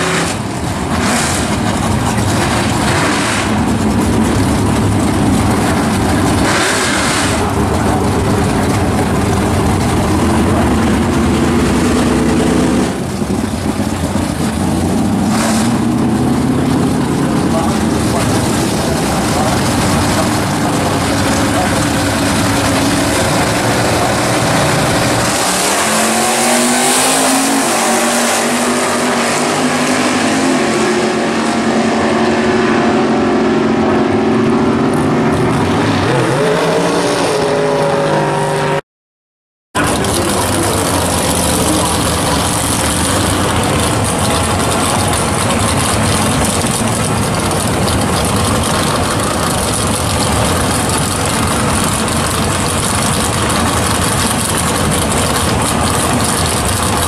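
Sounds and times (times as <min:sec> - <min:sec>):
drag racing cars accelerating: 0:00.0 - 0:38.8, 0:39.8 - 0:57.0
car engines running at idle: 0:00.4 - 0:26.7, 0:39.8 - 0:57.0.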